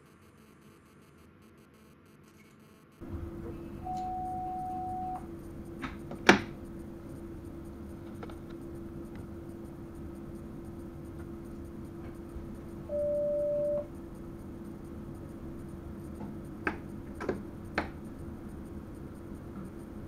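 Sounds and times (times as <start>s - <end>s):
steady electrical hum: 0.0s - 20.0s
cab equipment beeps: 3.8s - 5.2s, 12.9s - 13.9s.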